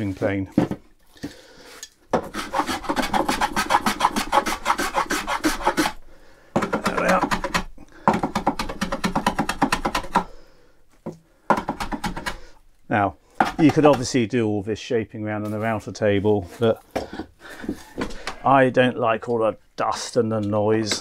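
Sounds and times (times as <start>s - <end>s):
hand plane cutting wood: 2.2s - 6.0s, 13.4s - 14.1s.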